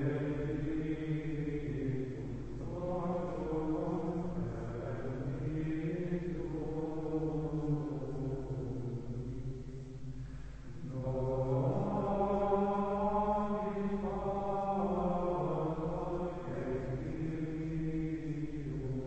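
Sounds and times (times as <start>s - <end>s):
men chanting in unison: 0.0s - 9.5s, 10.7s - 19.0s.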